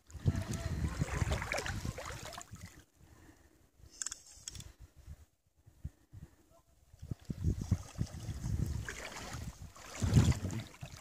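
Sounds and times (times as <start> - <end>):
wind buffeting microphone: 0.0 - 2.8, 5.8 - 11.0.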